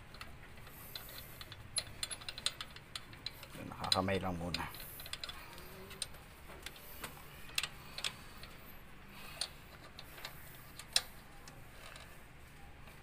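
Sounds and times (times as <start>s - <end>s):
metallic clicks of bolt turning: 0.0s - 6.8s.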